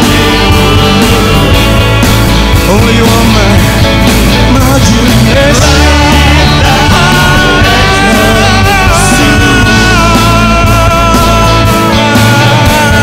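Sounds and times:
live rock band playing: 0:00.0 - 0:13.0.

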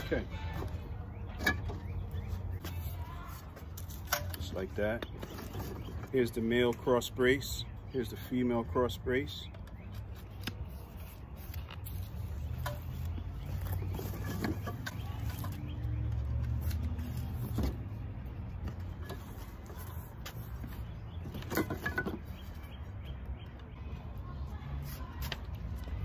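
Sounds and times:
metal tubes knocking and clinking: 0:21.3 - 0:22.3.

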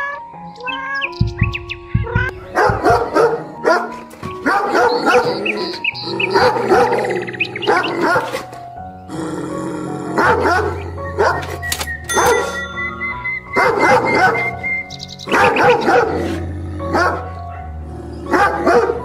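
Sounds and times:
background music with sustained tones: 0:00.0 - 0:19.0
dog barking and yapping: 0:02.3 - 0:07.0, 0:07.6 - 0:08.6, 0:10.2 - 0:12.5, 0:13.5 - 0:14.6, 0:15.3 - 0:17.7, 0:18.3 - 0:19.0.

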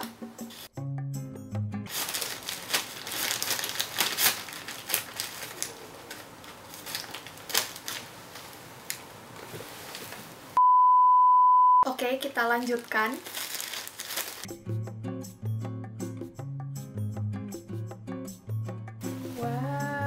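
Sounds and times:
scissors cutting plastic: 0:01.9 - 0:09.1
plastic crinkling: 0:01.9 - 0:10.5, 0:12.0 - 0:14.5
high beep tone: 0:10.6 - 0:11.8.

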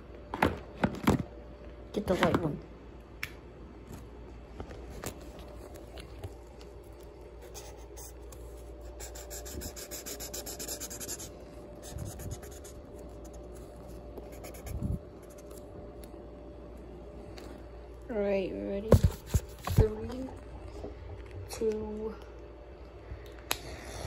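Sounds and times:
marker scratching on paper: 0:07.4 - 0:08.2, 0:08.9 - 0:13.4, 0:14.3 - 0:15.4.

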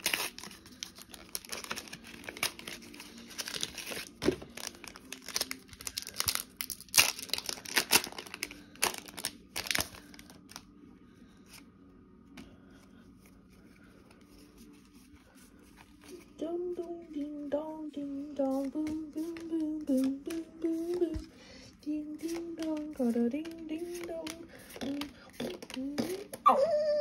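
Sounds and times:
foil wrapper crinkling and tearing: 0:00.0 - 0:10.8, 0:23.5 - 0:26.4.

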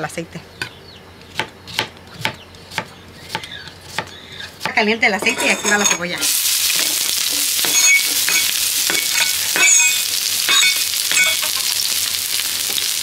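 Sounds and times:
onions sizzling in oil: 0:06.2 - 0:13.0.

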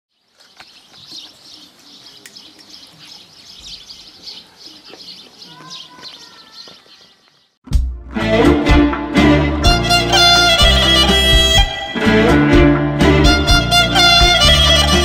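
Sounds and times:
small birds chirping: 0:00.1 - 0:07.6.

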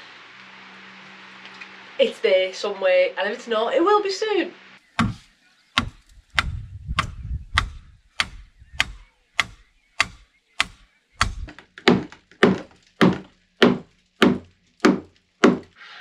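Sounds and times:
heavy hollow thunks: 0:05.0 - 0:15.8
rhythmic sharp knocks: 0:05.8 - 0:15.7.

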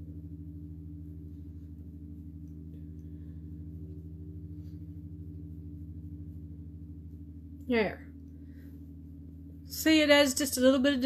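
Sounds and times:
low fluttering hum: 0:00.0 - 0:11.0.

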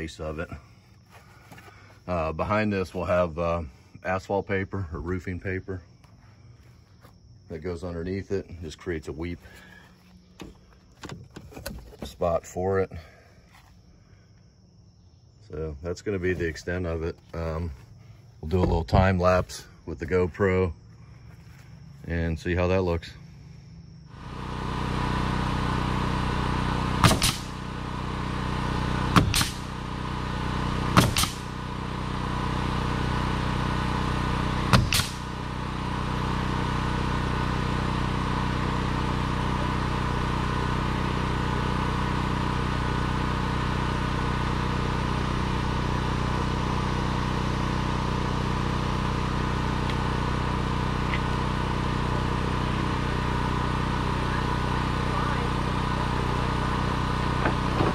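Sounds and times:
steady machine hum: 0:00.0 - 0:57.9
pneumatic nailer shots: 0:26.8 - 0:27.8, 0:28.6 - 0:30.0, 0:30.6 - 0:31.7, 0:34.4 - 0:35.5.

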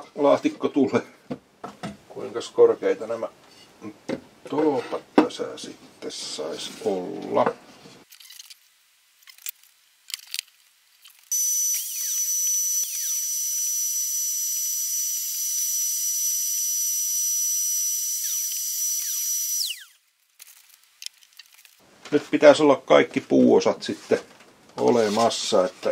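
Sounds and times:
small motor whining: 0:11.3 - 0:20.0.

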